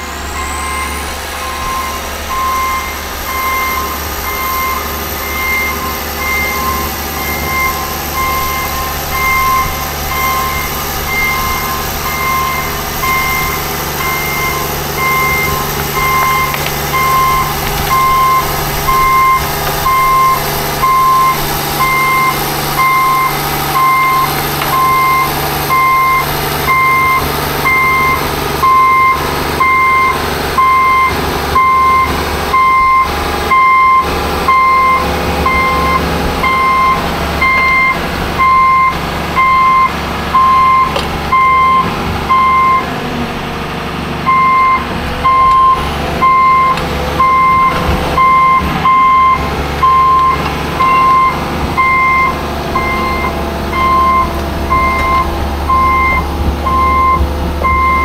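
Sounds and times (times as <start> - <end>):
excavator travel alarm beeping: 0.0 - 43.0, 44.2 - 58.0
diesel engine running: 0.0 - 58.0.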